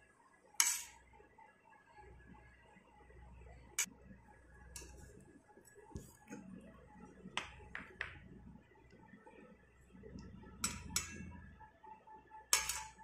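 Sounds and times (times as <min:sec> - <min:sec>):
kitchenware clinking: 0:10.6 - 0:11.3, 0:12.6 - 0:13.0.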